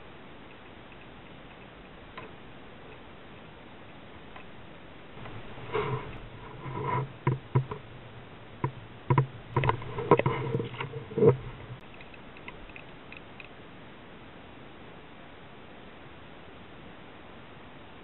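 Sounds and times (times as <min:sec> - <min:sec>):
hollow knocks on plastic kayak: 0:05.2 - 0:07.9.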